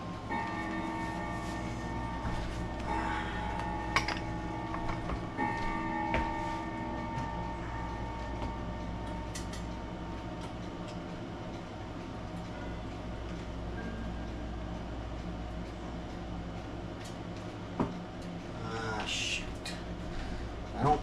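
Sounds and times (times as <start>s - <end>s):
high ringing tones: 0.0s - 11.8s
steady low hum: 0.0s - 21.0s.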